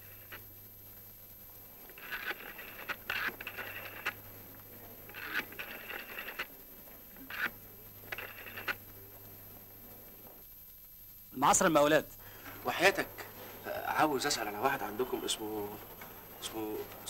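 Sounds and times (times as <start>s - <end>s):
rotary phone dial clicking whir: 1.8s - 6.5s, 7.2s - 8.8s.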